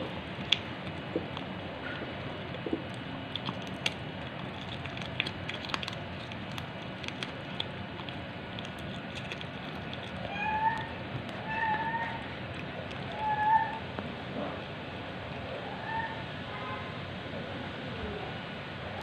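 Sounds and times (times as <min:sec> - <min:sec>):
cat chewing food: 0:00.0 - 0:14.4
cat meowing: 0:10.2 - 0:12.3, 0:13.0 - 0:13.9.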